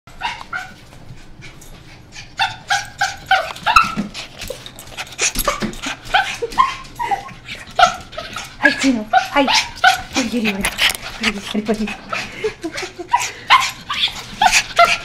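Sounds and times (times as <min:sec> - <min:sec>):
small dog whining and yipping: 0:02.4 - 0:04.0, 0:06.1 - 0:08.0.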